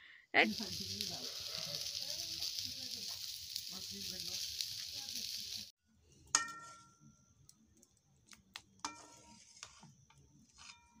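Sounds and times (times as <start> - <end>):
metal ladle clinking on pot: 6.3 - 7.0.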